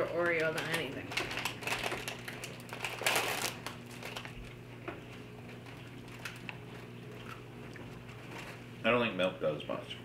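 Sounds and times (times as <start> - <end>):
plastic package crinkling: 0.0 - 4.6, 5.4 - 7.4.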